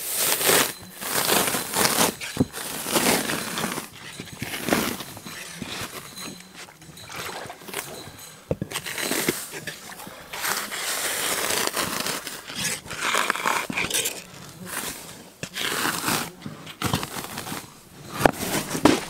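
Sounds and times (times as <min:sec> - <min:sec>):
bark scraping and tearing: 0:00.1 - 0:08.1, 0:08.7 - 0:19.0.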